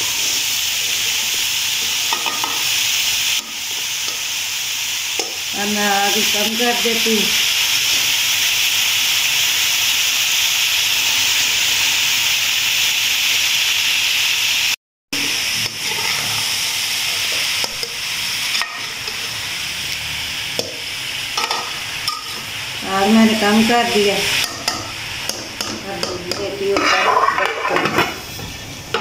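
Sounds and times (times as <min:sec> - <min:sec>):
vegetables sizzling in a pan: 0:00.0 - 0:29.0
metal spatula scraping pan: 0:15.6 - 0:17.9, 0:25.6 - 0:29.0.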